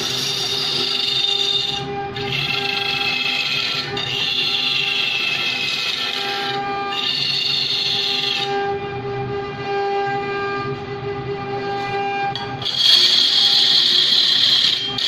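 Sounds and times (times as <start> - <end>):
scraper screeching on wood: 0.0 - 8.5, 12.4 - 15.0
wood lathe humming: 0.0 - 8.6, 12.4 - 15.0.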